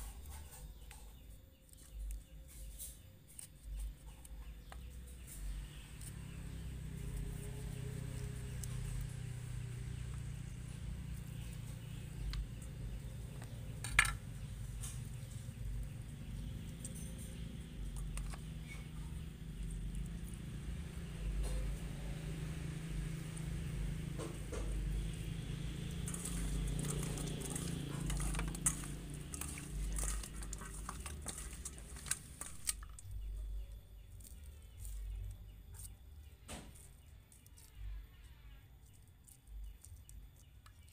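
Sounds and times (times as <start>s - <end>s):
steady low hum: 0.0s - 40.9s
hands squelching wet fish: 24.8s - 33.2s
knife scraping: 25.8s - 33.2s.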